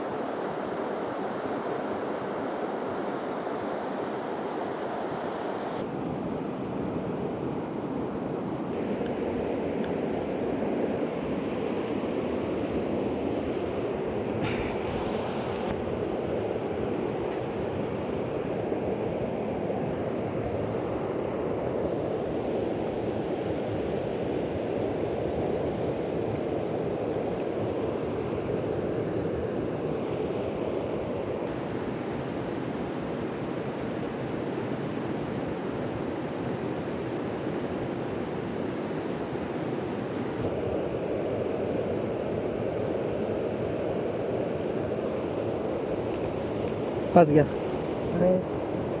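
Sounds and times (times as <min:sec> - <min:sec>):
water rushing: 0:00.0 - 0:05.8, 0:13.6 - 0:17.7.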